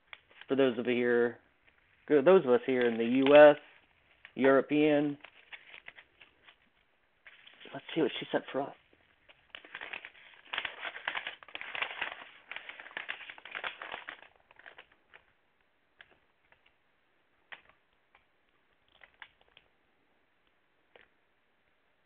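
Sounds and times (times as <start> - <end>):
paper crinkling and rustling: 0.0 - 0.7, 1.6 - 15.3, 18.8 - 19.7.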